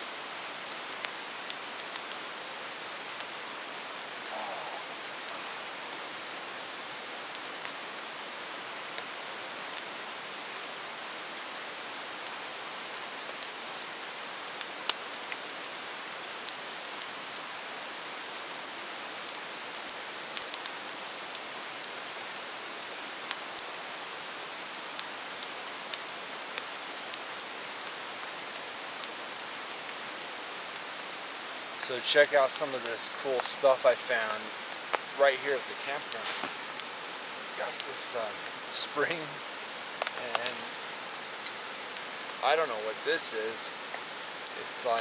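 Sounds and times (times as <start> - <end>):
rain falling: 0.0 - 45.0
sharp ticks and pops: 0.7 - 2.2, 12.2 - 15.8, 31.8 - 35.1, 37.6 - 40.8, 43.9 - 45.0.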